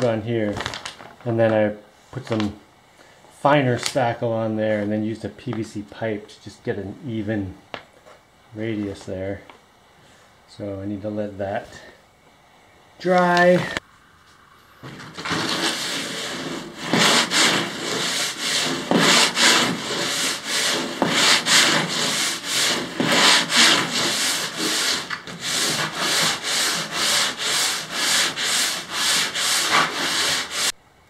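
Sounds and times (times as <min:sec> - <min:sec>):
sandpaper sanding strokes: 0:14.9 - 0:30.8.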